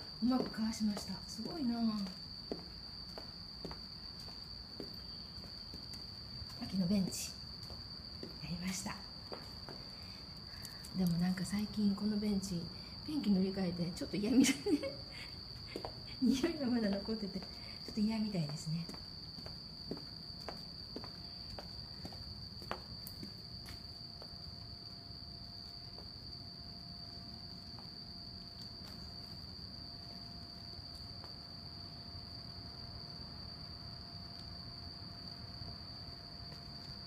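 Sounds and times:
insects chirring: 0:00.0 - 0:37.0.

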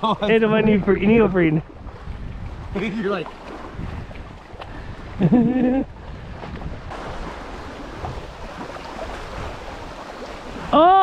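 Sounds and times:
lake water sloshing and lapping: 0:00.0 - 0:11.0
wind noise on microphone: 0:00.2 - 0:11.0
person exclaiming: 0:10.7 - 0:11.0.

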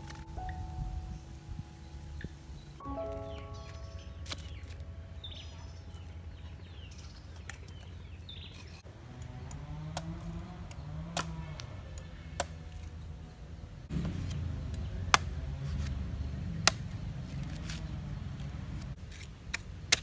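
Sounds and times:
birds chirping: 0:00.0 - 0:19.0
knife chopping coconut husk: 0:09.9 - 0:12.9, 0:14.0 - 0:16.0, 0:16.6 - 0:17.9, 0:18.8 - 0:20.0.

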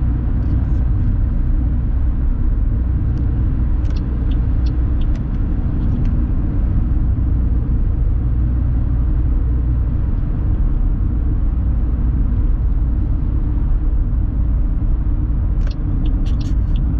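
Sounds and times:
car cabin road and engine rumble: 0:00.0 - 0:16.9.

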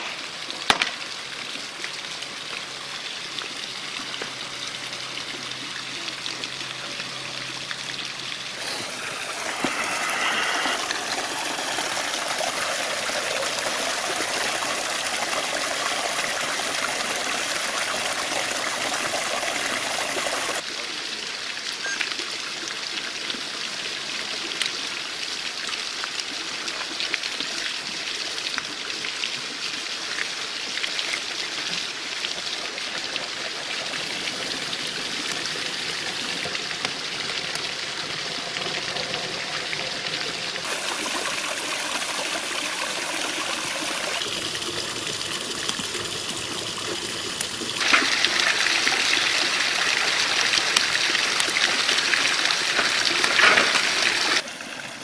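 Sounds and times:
fire rushing hiss: 0:08.6 - 0:13.4.

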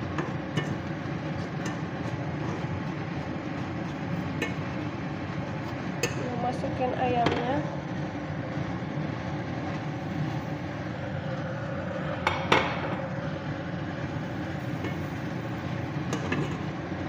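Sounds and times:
fork stirring in metal pan: 0:00.0 - 0:06.2.

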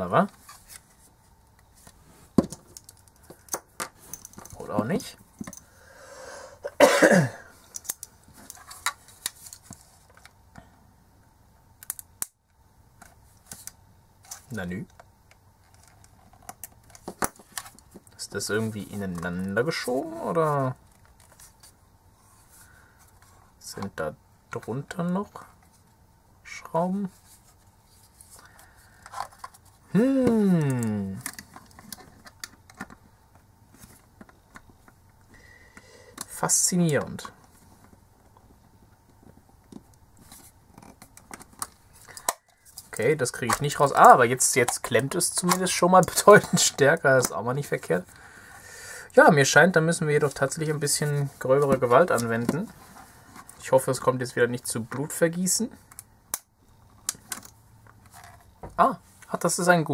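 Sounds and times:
person vocal sound: 0:19.9 - 0:20.3, 0:29.9 - 0:31.2
man humming: 0:29.9 - 0:31.3.

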